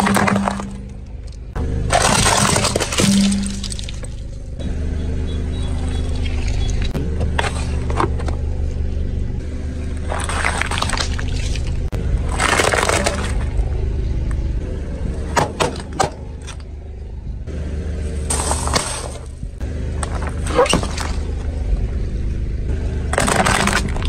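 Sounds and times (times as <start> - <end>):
tyre crunching objects: 0.0 - 4.3, 9.8 - 13.8, 18.0 - 21.6, 23.0 - 24.0
steady low hum: 0.0 - 24.0.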